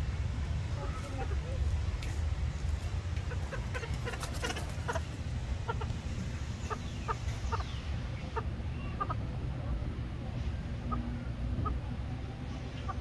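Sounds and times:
steady low rumble: 0:00.0 - 0:13.0
terns clucking calls: 0:00.7 - 0:13.0.

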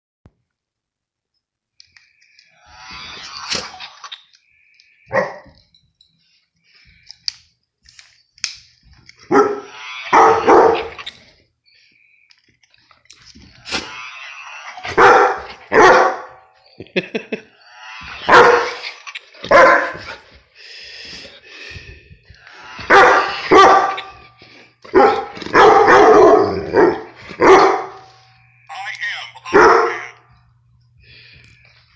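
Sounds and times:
dog barking: 0:09.3 - 0:10.9, 0:15.0 - 0:16.4, 0:18.3 - 0:18.8, 0:19.5 - 0:20.0, 0:22.9 - 0:24.1, 0:24.9 - 0:28.1, 0:29.5 - 0:30.2.

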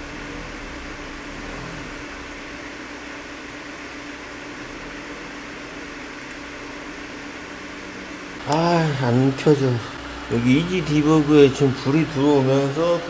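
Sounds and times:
computer fans whirring: 0:00.0 - 0:13.0.

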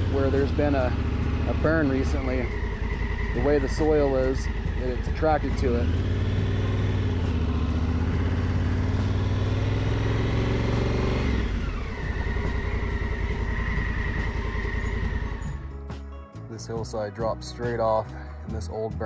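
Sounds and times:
motorcycle engine running: 0:00.0 - 0:16.1.

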